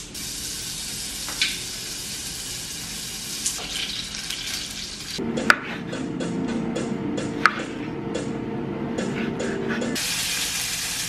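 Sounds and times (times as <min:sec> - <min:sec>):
food sizzling in a pan: 0:00.1 - 0:05.2, 0:10.0 - 0:11.0.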